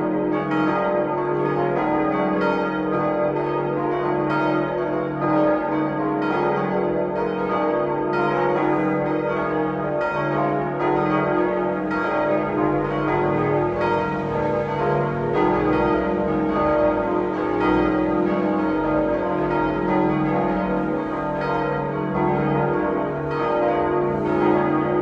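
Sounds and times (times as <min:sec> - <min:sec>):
church bells pealing: 0:00.0 - 0:25.0.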